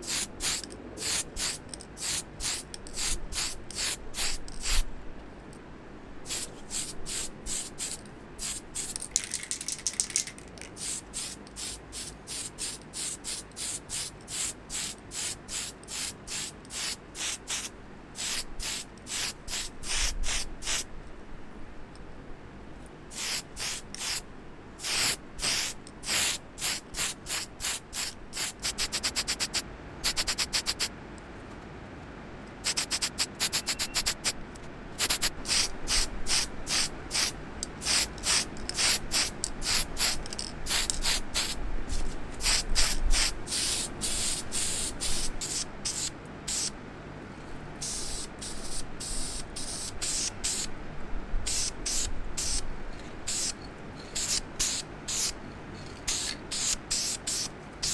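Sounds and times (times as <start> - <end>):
spray paint hissing bursts: 0.0 - 4.9, 6.2 - 20.9, 23.1 - 24.2, 24.8 - 30.9, 32.6 - 34.4, 35.0 - 46.8, 47.8 - 50.7, 51.4 - 52.6, 53.3 - 55.4, 56.0 - 57.9.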